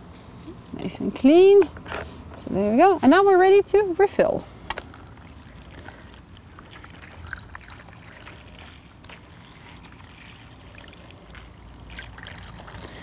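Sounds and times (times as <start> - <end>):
water trickling into a dish: 4.8 - 13.0.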